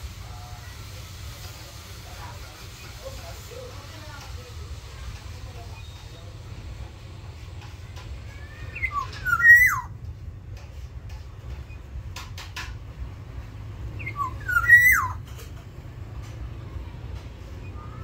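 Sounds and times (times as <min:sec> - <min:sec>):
bird fluty whistled call: 0:08.5 - 0:09.9, 0:14.0 - 0:15.2.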